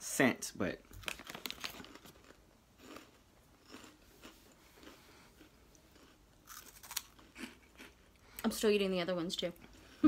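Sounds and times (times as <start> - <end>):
snack bag rustling: 0.9 - 7.5
crunching and chewing snack: 1.0 - 8.2.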